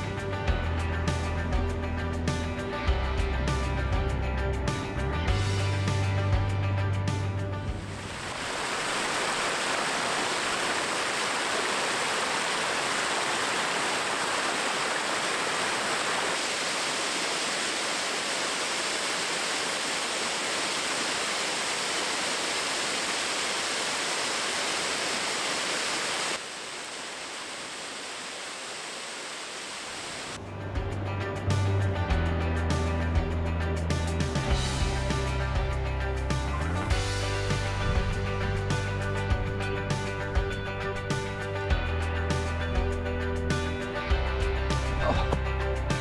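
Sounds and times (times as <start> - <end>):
music: 0.0 - 8.0, 30.4 - 46.0
waterfall pouring: 7.7 - 30.4.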